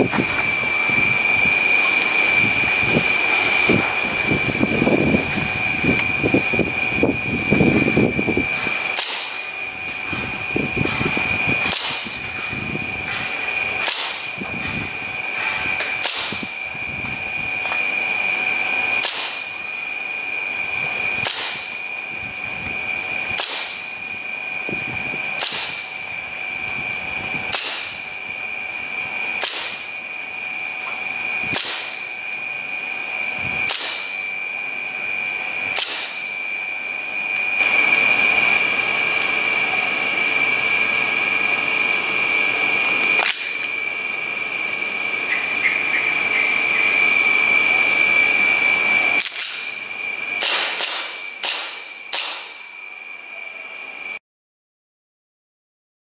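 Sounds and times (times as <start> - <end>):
steady high-pitched tone: 0.0 - 54.2
airsoft pistol shots: 9.0 - 9.4, 13.8 - 14.4, 16.0 - 16.4, 19.0 - 19.5, 21.2 - 21.7, 23.4 - 23.9, 25.4 - 25.9, 27.5 - 28.0, 29.4 - 29.9, 31.5 - 32.1, 33.7 - 34.2, 35.8 - 36.3, 50.4 - 52.6.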